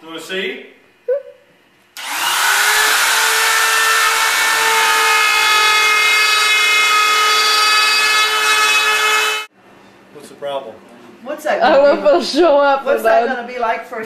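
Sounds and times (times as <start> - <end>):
spiral saw whining: 2.0 - 9.5.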